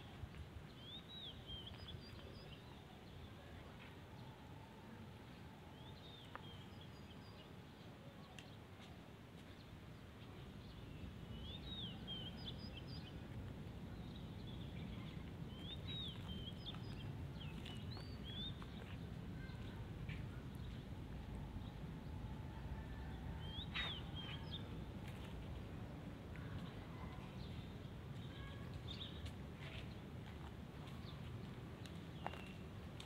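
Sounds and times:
small birds chirping: 9.4s - 21.0s, 23.4s - 25.4s
low steady background rumble: 9.5s - 33.0s.

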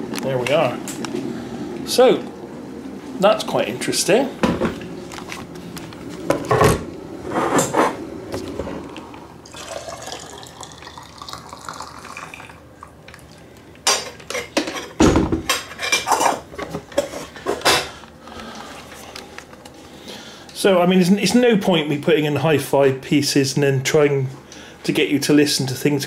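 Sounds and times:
hot water pouring into teapot: 9.4s - 12.7s.

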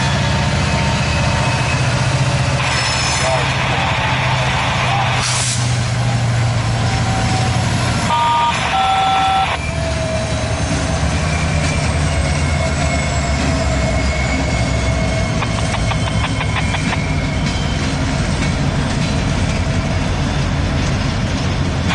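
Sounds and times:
diesel locomotive engine hum: 0.0s - 21.9s
locomotive horn: 6.9s - 9.9s.

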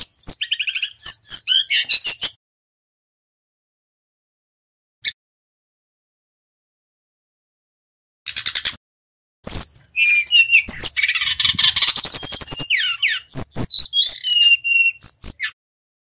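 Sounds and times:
bird singing fast varied song: 0.0s - 2.4s, 9.4s - 15.6s.

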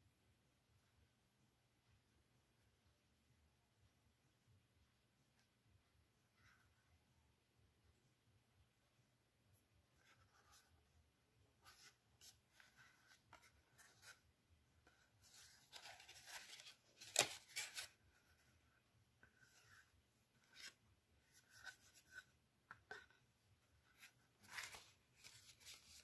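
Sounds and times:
cardstock rustling and scraping: 14.8s - 18.5s, 23.8s - 26.0s.

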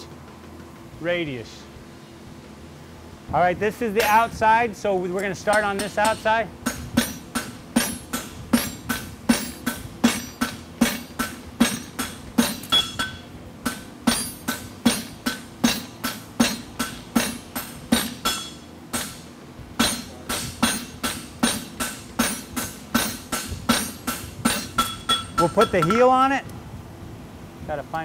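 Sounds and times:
hammer striking metal on anvil: 4.0s - 4.3s, 5.4s - 26.1s.

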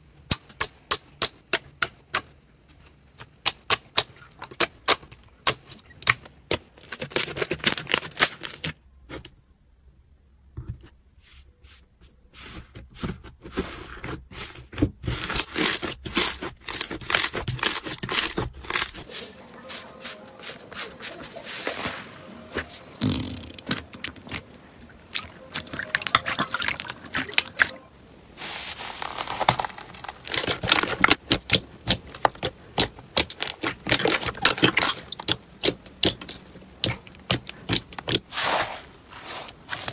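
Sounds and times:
slime squished by hands: 28.4s - 39.9s.

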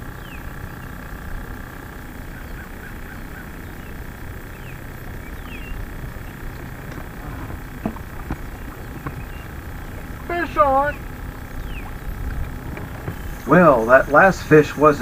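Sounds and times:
faint bird chirps: 2.2s - 12.3s
low rumble: 3.7s - 14.6s
sharp knocks on boat: 6.6s - 13.5s.

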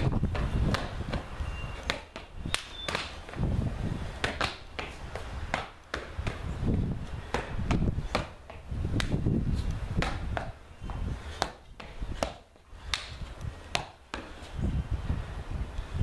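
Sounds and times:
shoes scuffing on concrete: 0.0s - 14.6s
hands slapping: 8.9s - 9.2s, 12.2s - 14.0s.

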